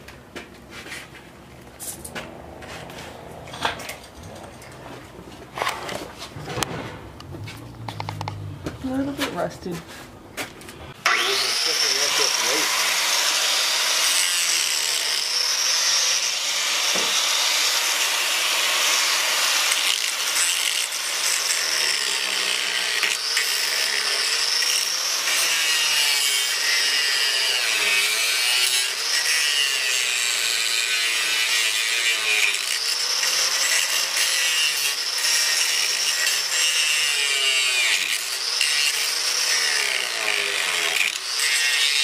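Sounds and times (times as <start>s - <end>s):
angle grinder cutting metal: 11.0s - 42.0s.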